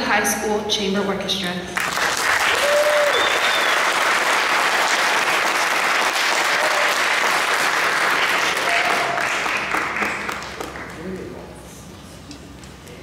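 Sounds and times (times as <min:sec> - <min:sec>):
audience applauding: 0:01.8 - 0:11.4.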